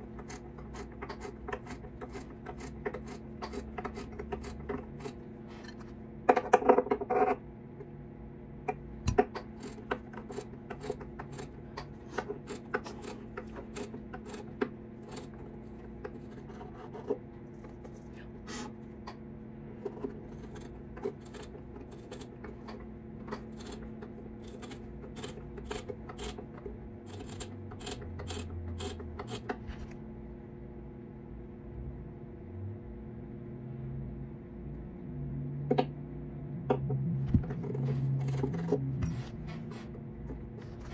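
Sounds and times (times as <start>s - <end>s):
hand tool scraping wood: 0.0s - 5.8s, 9.5s - 18.8s, 19.9s - 22.6s, 23.4s - 26.5s, 27.1s - 29.5s
steady low hum: 0.0s - 40.9s.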